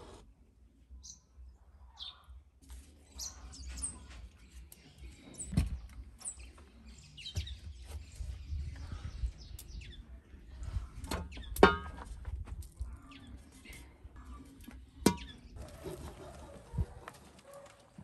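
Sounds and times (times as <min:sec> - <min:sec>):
small birds chirping: 0:03.0 - 0:11.6, 0:12.6 - 0:15.8
metal pot set on stones: 0:11.1 - 0:12.2, 0:15.0 - 0:15.4.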